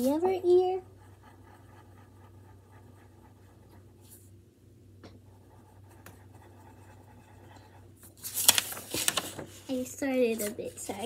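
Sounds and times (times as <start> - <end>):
pencil scratching on paper: 0.0 - 4.3, 5.3 - 7.9
low steady hum: 0.0 - 11.0.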